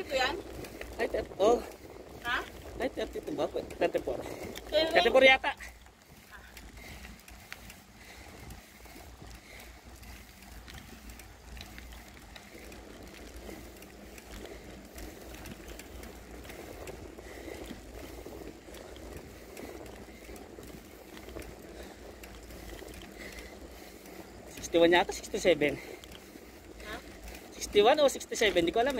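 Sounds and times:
tyre and wind rush: 0.0 - 7.1
bicycle hub ticking: 0.0 - 28.9.

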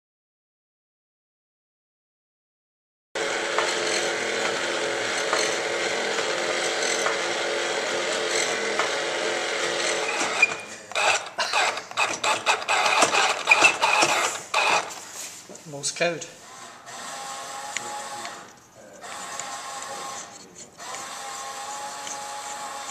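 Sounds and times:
mechanism whirring: 3.2 - 15.1, 16.4 - 22.9
wooden cams clicking and clattering: 8.0 - 15.0.

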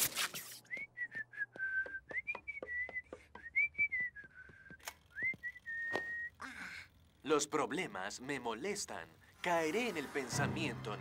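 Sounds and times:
person whistling a tune: 0.7 - 6.3.

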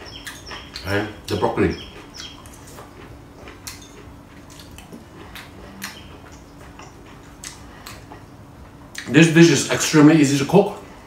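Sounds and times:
mouth clicks: 0.0 - 8.2
person chewing crunchy food: 0.0 - 9.1.

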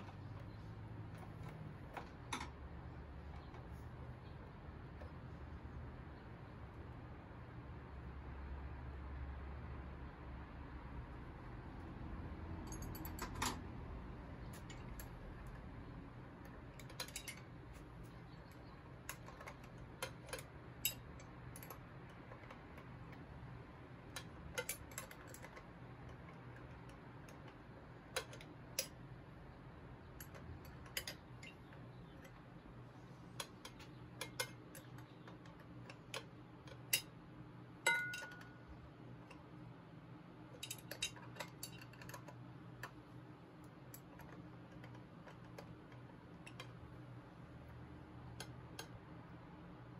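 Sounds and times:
small metallic clicks and taps: 16.4 - 23.3, 24.1 - 29.0, 30.1 - 32.6, 33.3 - 37.2, 37.9 - 38.6, 40.6 - 46.9, 47.7 - 49.0.

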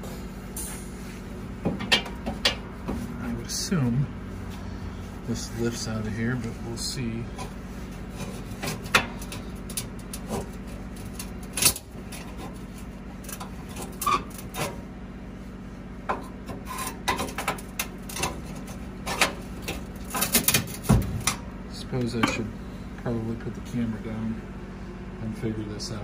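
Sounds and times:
low hum: 0.0 - 26.0
metal parts scraping and clunking: 7.3 - 14.8, 16.5 - 21.4.

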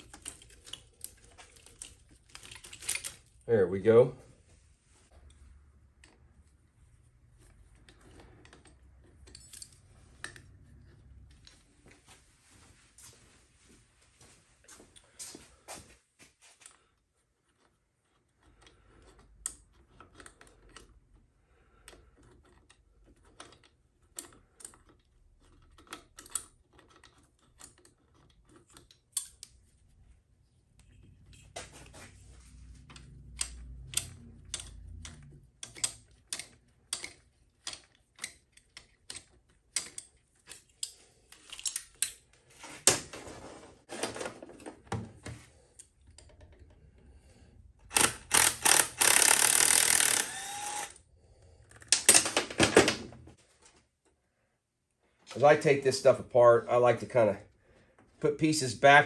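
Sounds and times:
metallic clicks of hand tools: 32.9 - 42.2, 47.9 - 50.9.

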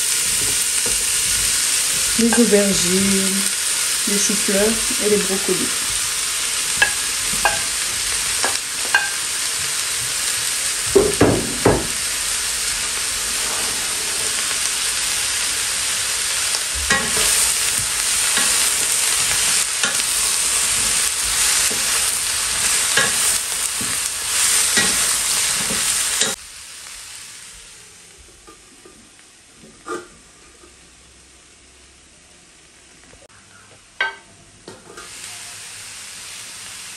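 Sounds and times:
vegetables sizzling in oil: 0.0 - 33.3, 34.1 - 36.9
wooden spatula scraping a pan: 11.0 - 26.4.

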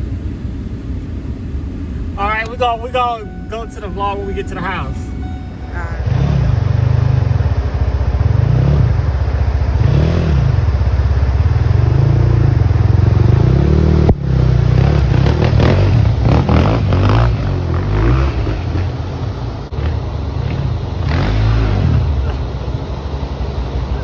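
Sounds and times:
dirt bike engine revving: 6.0 - 22.5.

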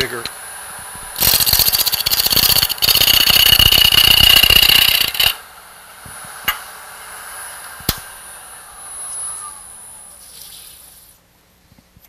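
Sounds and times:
lathe running quietly: 0.0 - 11.2.

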